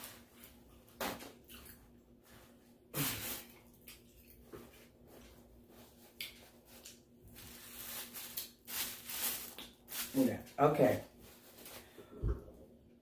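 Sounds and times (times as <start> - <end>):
paper napkin rustling: 7.3 - 10.4.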